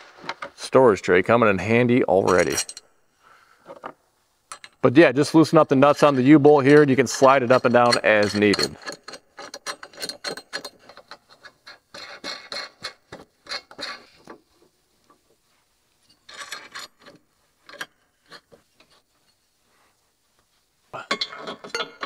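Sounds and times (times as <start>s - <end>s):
metal nuts and washers clicking: 2.2s - 2.9s, 4.5s - 4.9s, 5.8s - 15.3s, 16.0s - 19.4s, 21.0s - 22.0s.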